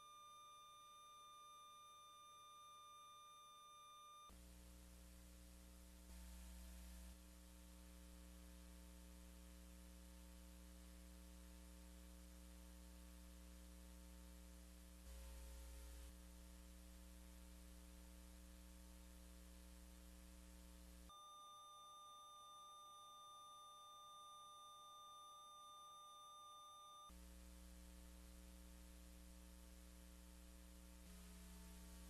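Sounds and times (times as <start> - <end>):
faint electrical hum with hiss: 0.0 - 32.0.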